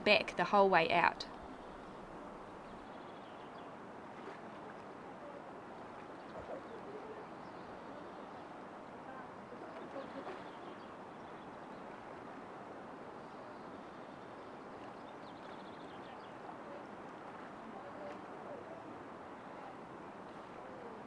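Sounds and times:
river flowing: 0:00.0 - 0:21.0
people wading through water: 0:01.4 - 0:21.0.

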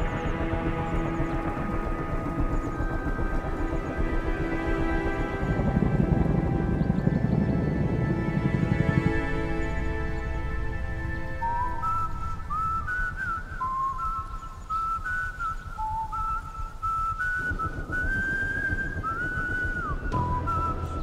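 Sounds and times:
low backing music: 0:00.0 - 0:13.1, 0:20.0 - 0:21.0
whistled melody: 0:00.0 - 0:21.0.

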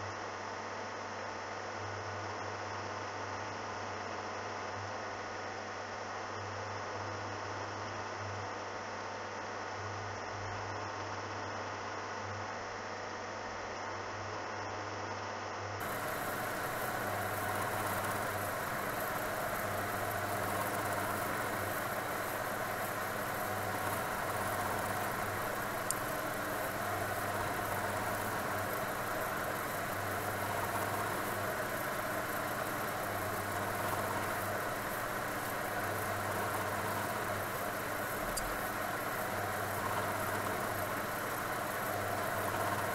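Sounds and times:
milling machine cutting metal: 0:15.8 - 0:42.9.

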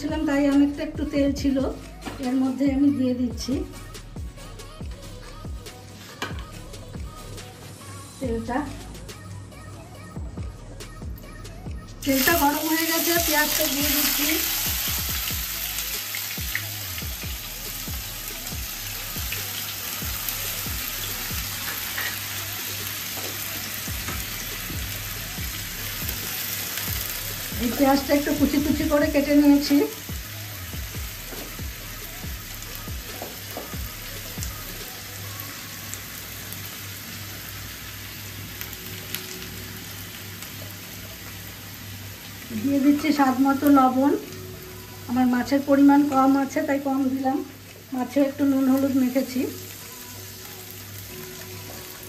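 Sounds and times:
background music with steady beat: 0:00.0 - 0:52.0
onions sizzling in hot oil: 0:12.0 - 0:52.0.

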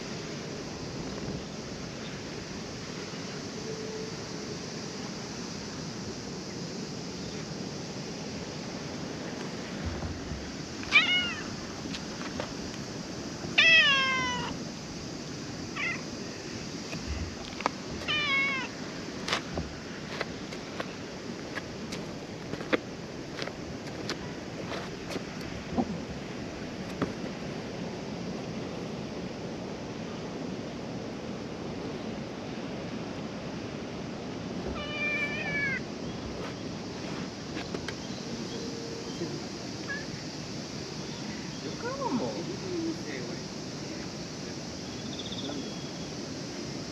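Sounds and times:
cat meowing: 0:10.9 - 0:11.5, 0:13.6 - 0:14.6, 0:15.7 - 0:16.1, 0:18.0 - 0:18.7, 0:34.7 - 0:35.8.

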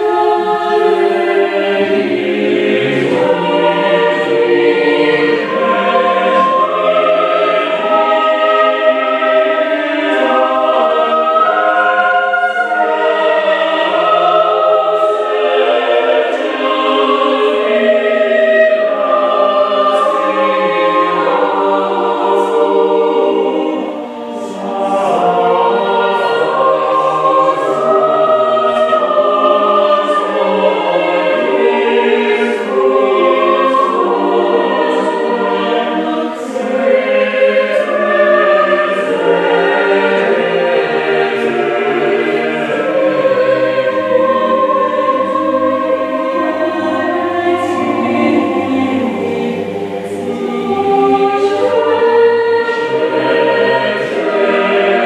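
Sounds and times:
choir singing in harmony: 0:00.0 - 0:55.0.

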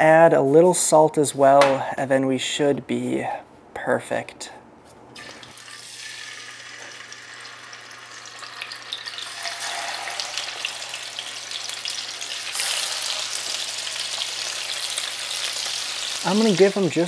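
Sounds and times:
fish sizzling in oil: 0:05.2 - 0:17.0.

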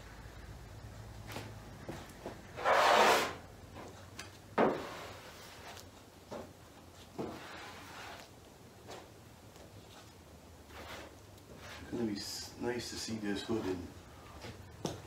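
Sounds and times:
spreader scraping filler on metal: 0:07.2 - 0:08.3, 0:10.7 - 0:12.0.

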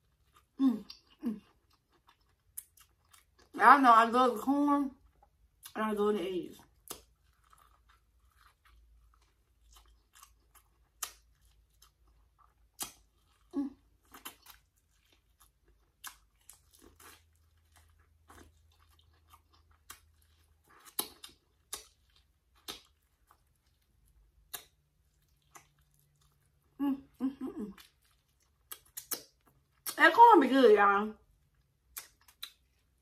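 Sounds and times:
crunchy bites and chewing: 0:06.6 - 0:26.6, 0:27.8 - 0:30.0
wet mouth clicks: 0:12.8 - 0:13.0, 0:20.8 - 0:21.9, 0:24.5 - 0:24.8, 0:28.7 - 0:30.0, 0:31.9 - 0:32.8.

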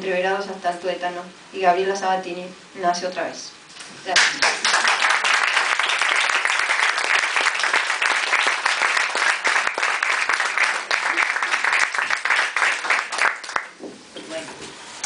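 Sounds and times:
audience applauding: 0:04.2 - 0:13.8.

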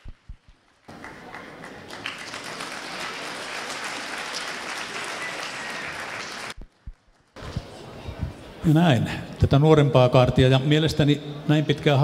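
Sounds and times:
audience applauding: 0:00.6 - 0:07.4.

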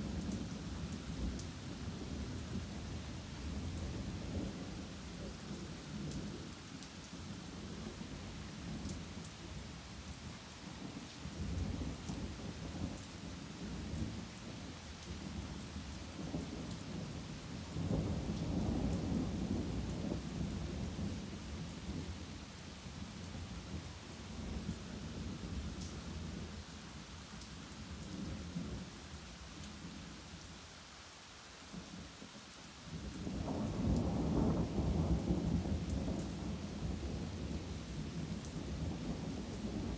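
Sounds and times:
steady rain falling: 0:00.0 - 0:39.9
thunder rumbling: 0:33.2 - 0:39.9.

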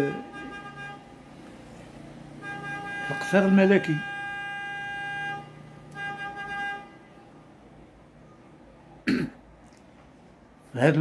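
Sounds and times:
vehicle horn blasts: 0:00.0 - 0:01.2, 0:02.3 - 0:07.3.

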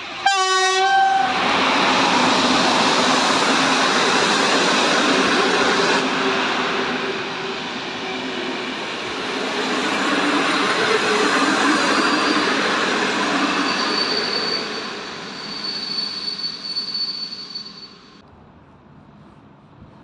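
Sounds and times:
train wheels on rails: 0:00.0 - 0:20.0
locomotive horn blast: 0:00.2 - 0:01.4.

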